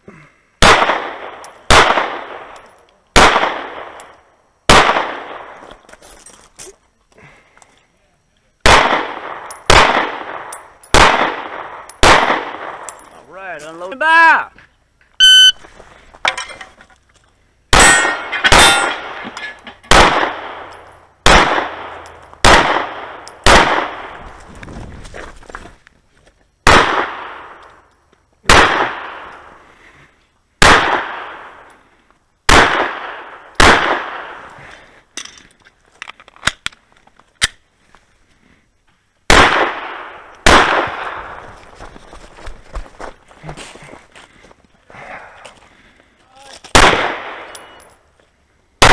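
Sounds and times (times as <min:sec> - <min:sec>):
pistol shots with echo: 0:00.6 - 0:02.6, 0:03.2 - 0:04.1, 0:04.7 - 0:05.6, 0:08.6 - 0:13.0, 0:17.7 - 0:19.2, 0:19.9 - 0:24.2, 0:26.6 - 0:27.6, 0:28.5 - 0:29.5, 0:30.6 - 0:31.6, 0:32.5 - 0:34.4, 0:39.3 - 0:41.4, 0:46.7 - 0:47.8.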